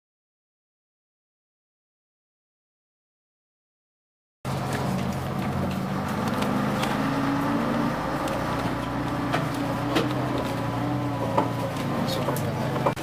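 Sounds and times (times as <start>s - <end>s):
bus diesel engine running: 4.5s - 13.0s.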